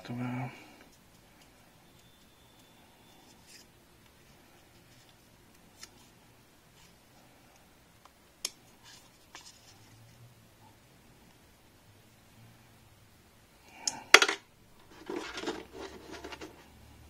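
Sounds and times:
cardboard rubbing: 14.9s - 16.7s.

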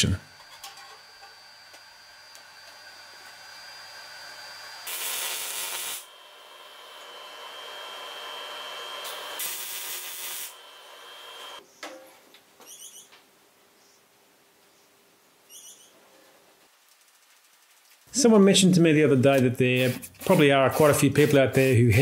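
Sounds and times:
welder crackling hiss: 1.1s - 11.6s.

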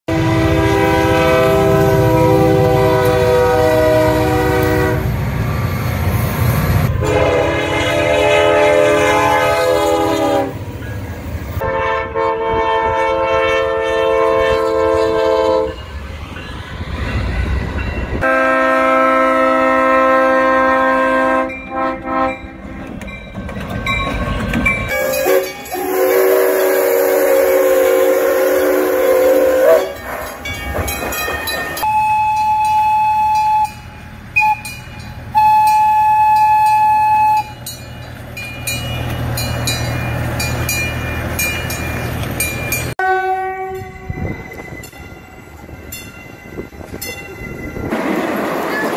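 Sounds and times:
train horn blasts: 0.1s - 5.2s, 6.9s - 10.6s, 11.6s - 15.9s, 18.2s - 22.8s, 24.9s - 30.0s, 31.8s - 37.6s, 42.9s - 44.3s
diesel locomotive engine rumble: 0.1s - 48.9s.

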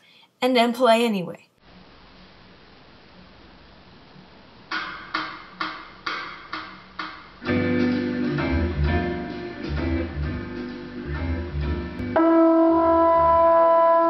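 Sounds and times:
music on a stereo: 4.7s - 12.2s.

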